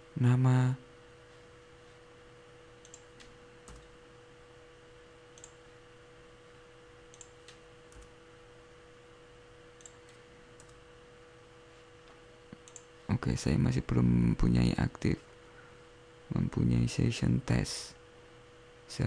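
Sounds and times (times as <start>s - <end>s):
electrical hum: 0.0s - 19.0s
computer mouse clicks: 2.8s - 3.9s, 5.4s - 5.6s, 7.1s - 8.1s, 9.8s - 10.8s, 12.5s - 12.9s.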